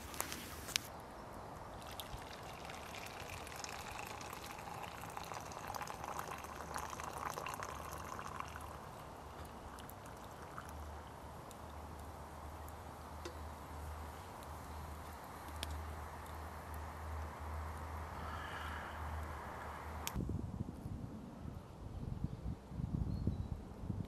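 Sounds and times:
water pouring into metal mug: 1.8s - 10.8s.

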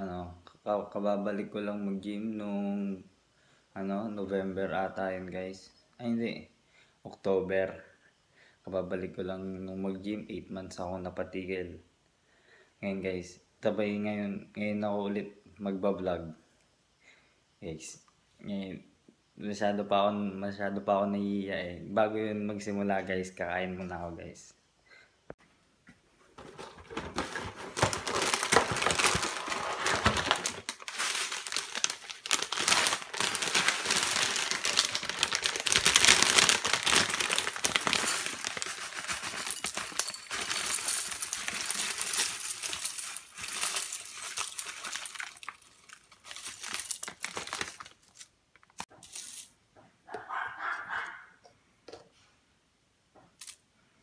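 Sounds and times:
foil bag crinkling: 26.4s - 49.4s
dry flakes rattling into bowl: 28.1s - 48.2s, 49.0s - 49.5s.

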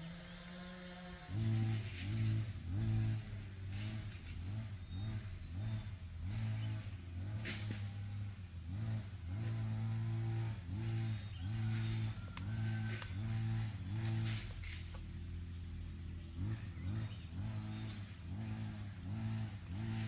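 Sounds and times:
small engine revving: 0.0s - 20.0s.

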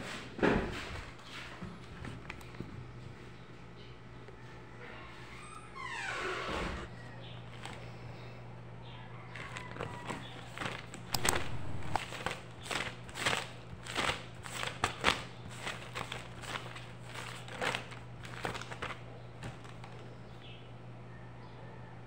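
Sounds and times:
steady low hum: 0.3s - 22.0s
notebook pages flipping: 7.5s - 7.9s, 9.4s - 20.1s.

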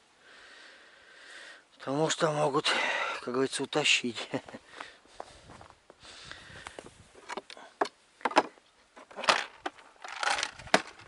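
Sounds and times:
gear rattling: 9.2s - 11.0s.

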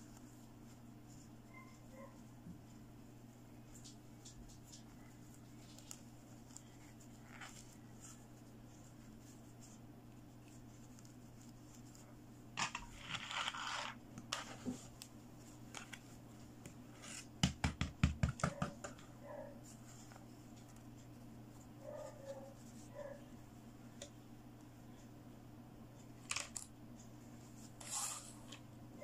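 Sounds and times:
scratchy rustle of doll clothes: 0.0s - 17.3s, 19.2s - 23.4s, 27.2s - 28.6s
faint low hum: 0.0s - 17.4s, 18.5s - 29.0s.

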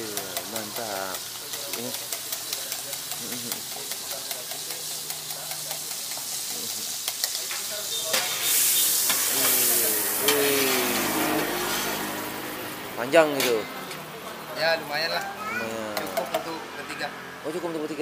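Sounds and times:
metal spatula ticks: 0.0s - 8.2s
food sizzling on griddle: 0.0s - 17.6s.

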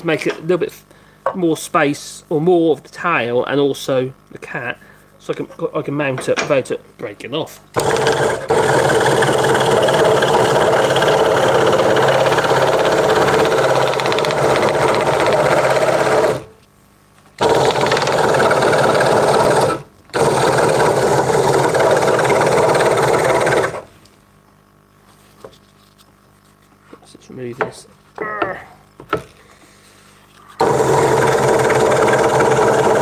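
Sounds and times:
scroll saw cutting wood: 7.8s - 16.5s, 17.4s - 23.9s, 30.6s - 33.0s.

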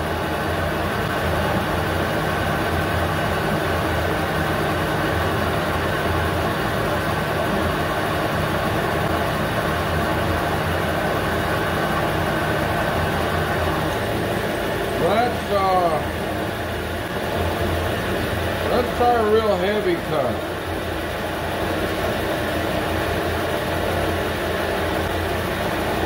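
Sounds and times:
lathe motor humming: 0.0s - 26.0s.

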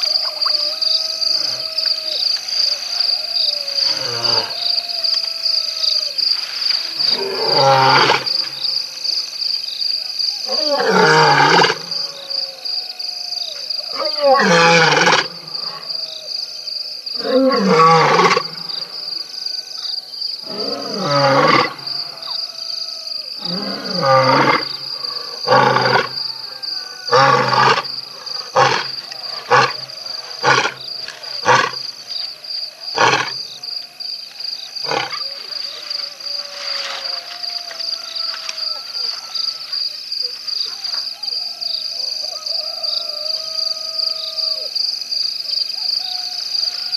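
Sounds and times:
lion roaring: 20.4s - 22.2s, 23.4s - 31.9s, 32.9s - 33.6s, 34.8s - 35.3s
lion grunting: 27.0s - 31.9s, 32.9s - 33.4s, 34.8s - 35.2s.

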